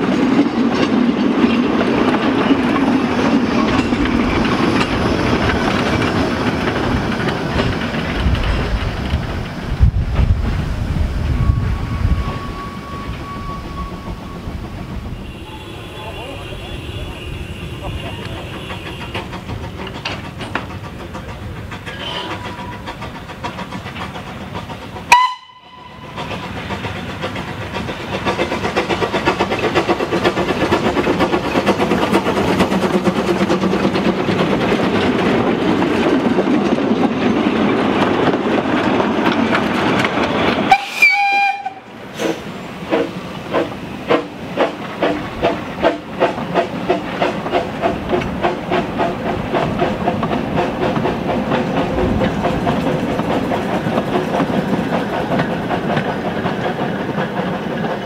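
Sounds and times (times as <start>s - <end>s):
rush of steam: 0.0s - 58.0s
locomotive exhaust beats: 11.2s - 36.2s
steam locomotive whistle: 11.4s - 19.2s, 25.1s - 26.2s, 40.7s - 42.5s.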